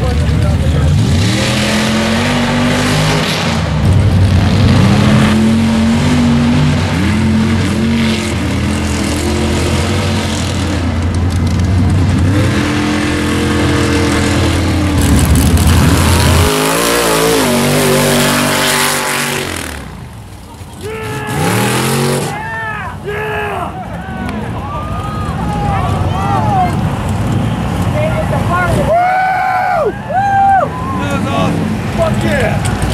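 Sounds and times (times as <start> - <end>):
truck engine revving hard: 0.0 - 20.1, 20.8 - 22.6.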